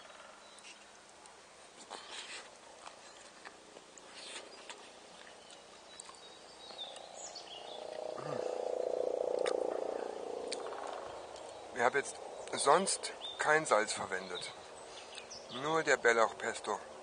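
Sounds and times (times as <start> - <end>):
man chewing: 1.8 - 6.2
man humming with closed lips: 8.2 - 8.6.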